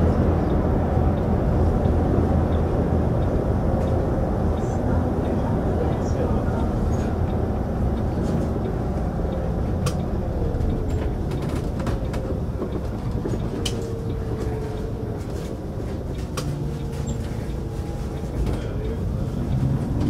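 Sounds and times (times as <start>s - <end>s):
bus engine and road rumble: 0.0s - 20.0s.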